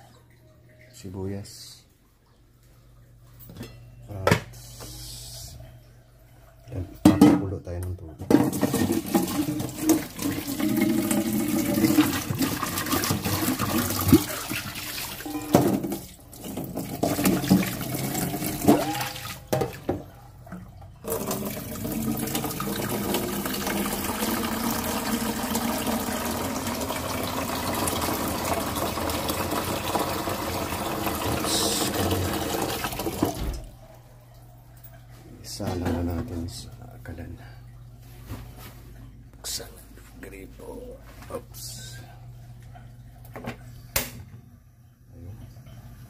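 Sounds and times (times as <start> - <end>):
faucet running into sink: 8.3 - 20.0, 21.0 - 33.8
water filling a metal pot: 8.3 - 20.0, 21.0 - 33.4.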